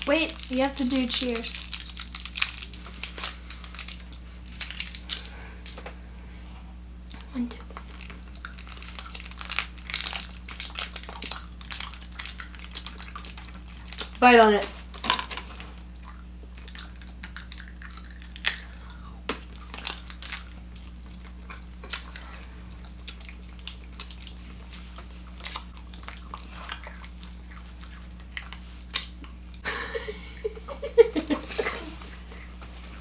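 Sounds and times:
chewing and crunching candy: 0.0s - 5.8s, 7.1s - 29.6s
laughter: 29.6s - 32.0s.

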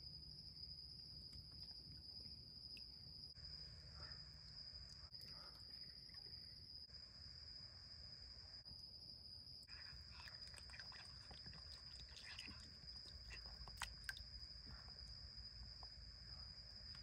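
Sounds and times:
night insects chirring: 0.0s - 17.0s
raccoon chewing grapes: 9.7s - 14.4s.

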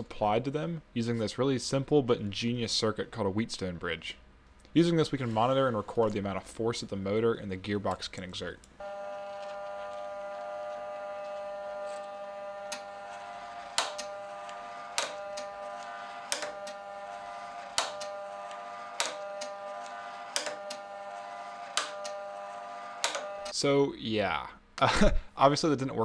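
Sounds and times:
stepper motor whining: 8.8s - 23.6s.

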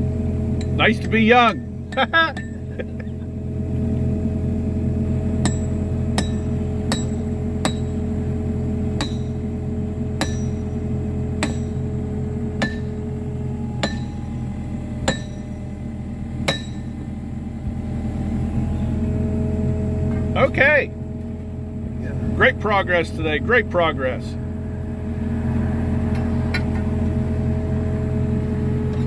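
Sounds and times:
low engine hum: 0.0s - 29.0s
maul striking steel spikes: 5.4s - 8.0s, 9.0s - 9.4s, 10.2s - 10.7s, 11.4s - 11.8s, 12.6s - 13.0s, 13.8s - 14.2s, 15.0s - 15.5s, 16.4s - 16.9s.

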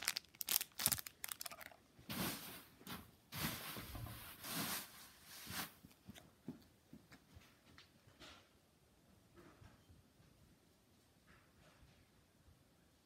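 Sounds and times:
cellophane crinkling: 0.0s - 2.6s.

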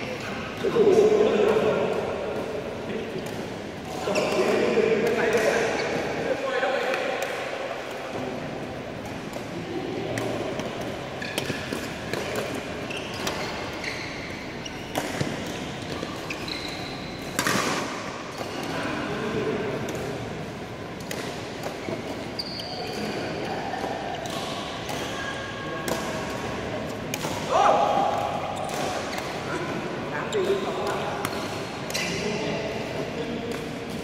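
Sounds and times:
racket hitting shuttlecock: 9.0s - 18.8s, 19.6s - 29.5s
shoe squeaks on court: 12.3s - 17.5s, 21.8s - 23.4s.

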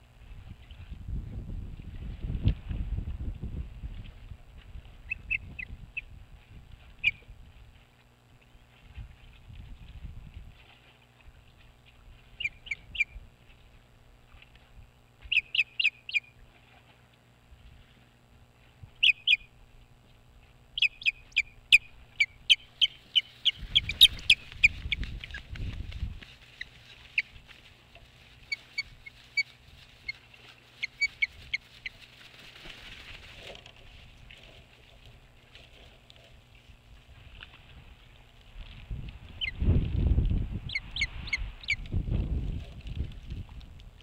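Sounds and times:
osprey chirping: 5.1s - 6.1s, 7.0s - 7.3s, 12.3s - 13.2s, 15.2s - 16.4s, 19.0s - 19.6s, 20.7s - 25.7s, 26.5s - 27.4s, 28.4s - 32.1s, 39.3s - 39.6s, 40.6s - 41.9s.

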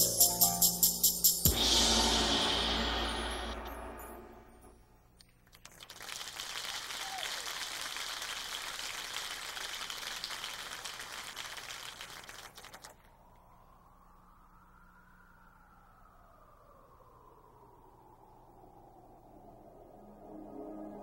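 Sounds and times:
audience applauding: 5.4s - 13.0s.

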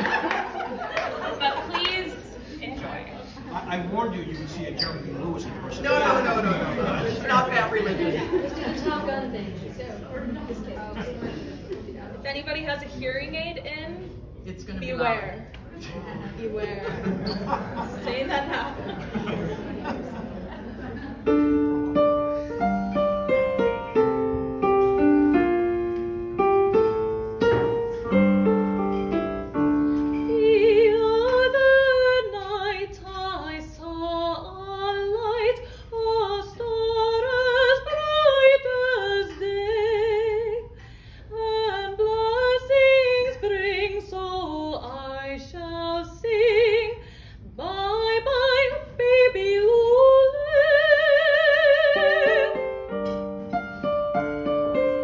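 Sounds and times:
digital piano playing: 21.3s - 30.4s, 52.4s - 55.0s
woman singing operatically: 30.3s - 40.6s, 47.6s - 52.6s.

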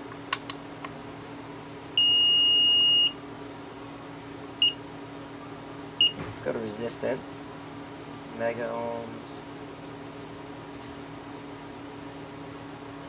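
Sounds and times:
multimeter beeps: 2.0s - 3.2s, 4.6s - 4.8s, 6.0s - 6.2s.

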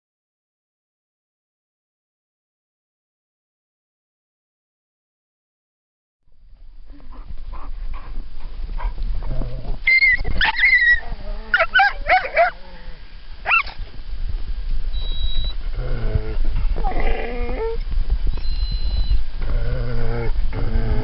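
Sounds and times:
steady low rumble: 6.3s - 21.0s
dogs yipping and whining: 9.8s - 12.6s, 13.4s - 13.8s, 16.8s - 17.8s.

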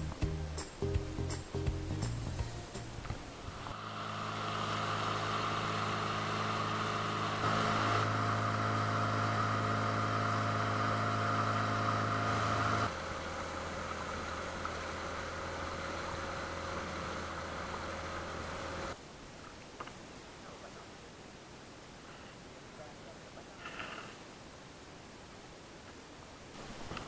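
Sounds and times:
boat engine droning: 0.0s - 19.0s.

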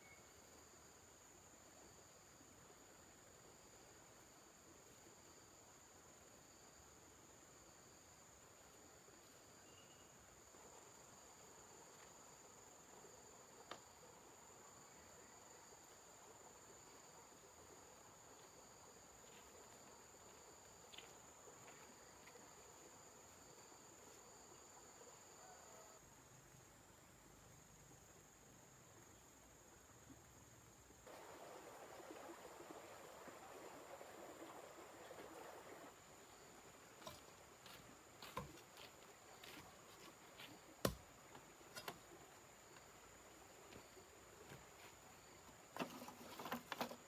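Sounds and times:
insects droning: 0.0s - 47.0s
hoe blade striking dirt: 40.8s - 41.1s.

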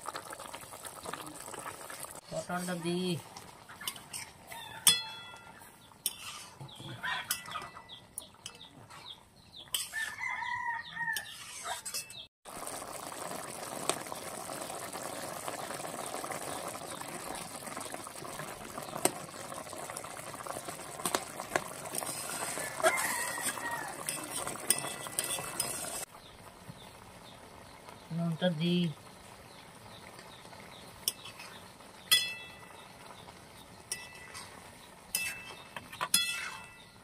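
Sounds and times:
thick curry bubbling: 0.0s - 4.8s, 12.2s - 37.0s
spatula scraping metal wok: 6.0s - 6.8s, 9.7s - 10.1s, 11.2s - 12.3s, 22.0s - 26.1s, 33.9s - 36.9s
chicken calling: 6.8s - 8.0s.

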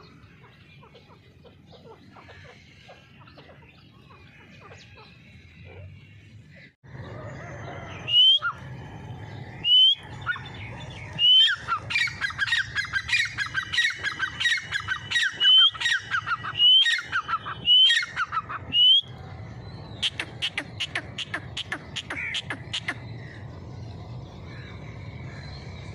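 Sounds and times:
francolin whistled calls: 7.8s - 8.6s, 9.6s - 19.1s.

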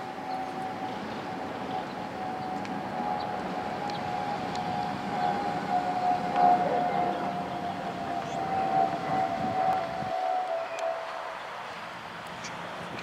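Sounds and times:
train rumbling: 0.0s - 13.0s
higher brake squeal: 4.1s - 11.5s.

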